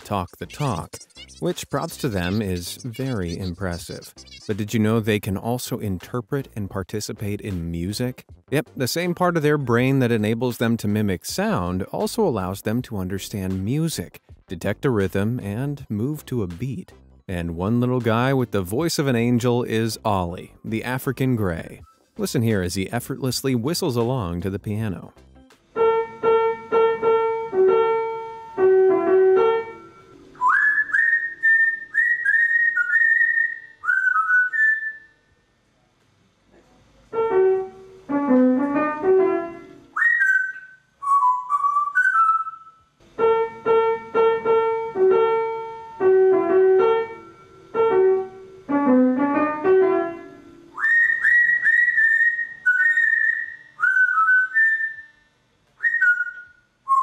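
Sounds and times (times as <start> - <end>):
piano melody: 25.8 - 31.4, 37.1 - 40.0, 43.2 - 50.8
parrot whistling: 29.7 - 35.2, 39.9 - 42.8, 50.8 - 57.0.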